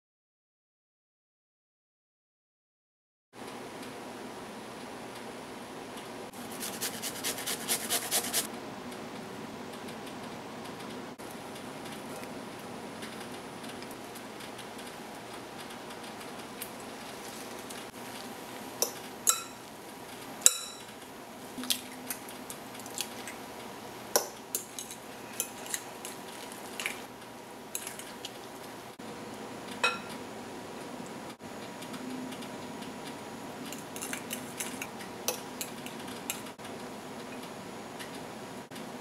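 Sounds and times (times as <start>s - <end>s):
spoon clinking against glass bowl: 18.8s - 19.6s, 20.4s - 20.9s, 29.8s - 30.1s.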